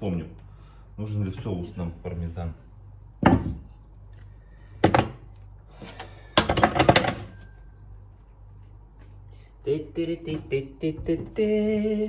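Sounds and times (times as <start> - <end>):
kitchen items knocking on countertop: 3.2 - 3.7.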